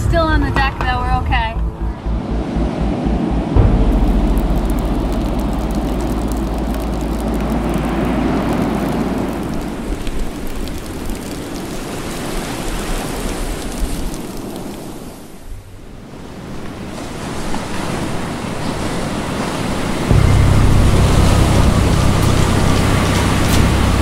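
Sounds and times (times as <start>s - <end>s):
wind buffeting microphone: 0.0s - 24.0s
rain hissing: 3.0s - 15.5s, 20.1s - 24.0s
breaking water: 3.6s - 15.2s.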